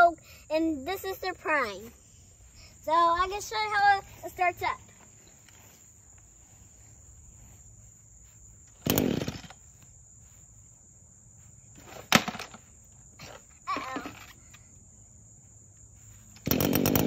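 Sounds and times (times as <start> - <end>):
string trimmer engine turning over: 8.7 - 9.6, 16.3 - 17.0.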